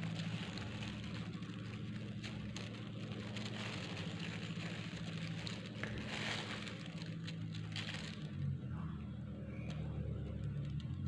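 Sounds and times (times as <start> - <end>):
plastic glove crinkling: 0.0 - 8.6
steady low hum: 0.0 - 11.0.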